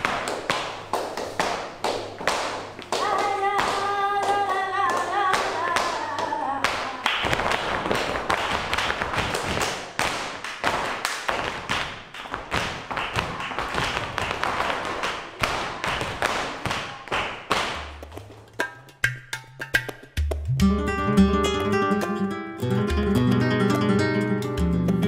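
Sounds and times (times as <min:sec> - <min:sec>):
dance shoes tapping and stamping: 0:00.0 - 0:21.9, 0:23.0 - 0:25.0
low musical notes: 0:17.8 - 0:25.0.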